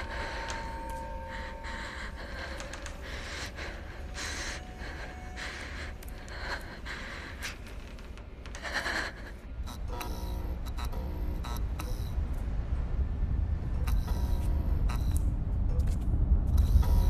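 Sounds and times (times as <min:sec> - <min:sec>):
person breathing heavily in gasps: 0:00.0 - 0:07.9
low rumble: 0:00.0 - 0:17.0.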